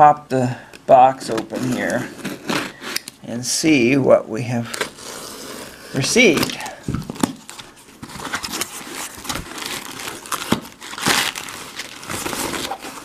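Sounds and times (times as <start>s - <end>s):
packing material rustling: 4.6s - 13.0s.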